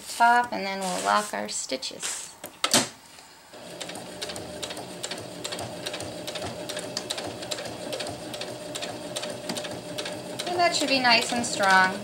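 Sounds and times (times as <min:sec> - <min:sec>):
sewing machine running: 0:03.6 - 0:12.0.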